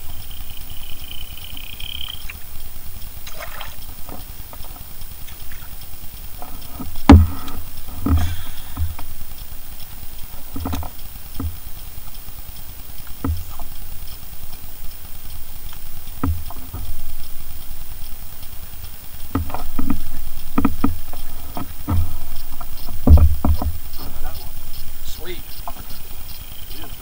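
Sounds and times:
faint steady hiss: 0.0s - 27.0s
low thumps on boat hull: 6.8s - 9.2s, 13.2s - 13.7s, 16.2s - 17.0s, 19.3s - 24.7s.

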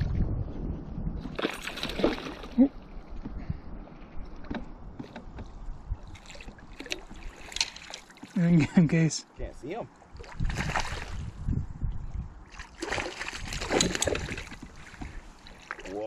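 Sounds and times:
water sloshing and splashing: 1.2s - 3.4s, 4.1s - 8.6s, 9.9s - 16.0s.

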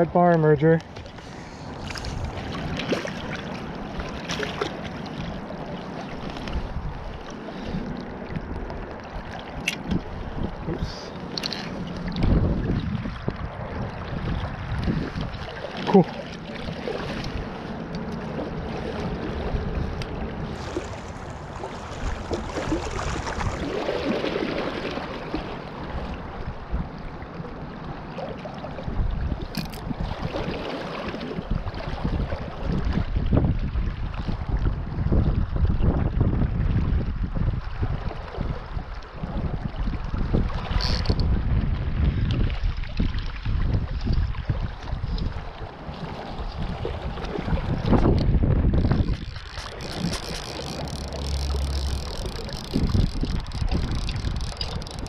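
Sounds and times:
wind buffeting microphone: 0.0s - 4.7s, 5.4s - 27.8s, 28.6s - 55.0s
river current rushing: 15.4s - 26.4s, 48.8s - 55.0s
splashes and knocks in net: 20.6s - 25.4s.

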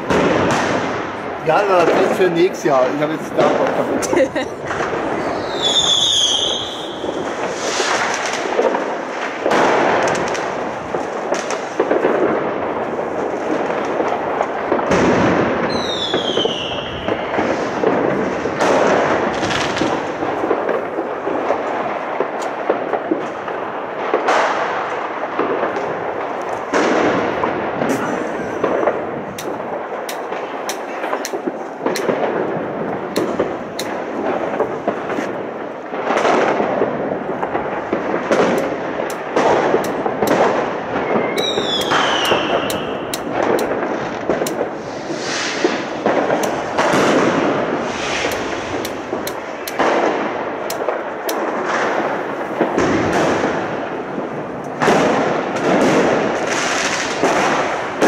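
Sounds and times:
fireworks and firecrackers crackling: 0.0s - 58.0s
whistling firework: 3.4s - 22.3s, 36.0s - 58.0s.

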